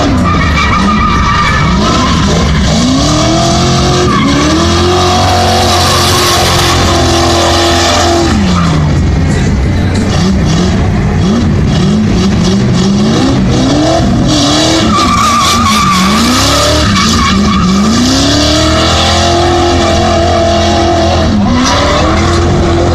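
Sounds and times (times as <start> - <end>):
tyre squeal: 0.0 - 8.9, 14.5 - 22.5
car engine revving: 0.0 - 22.9.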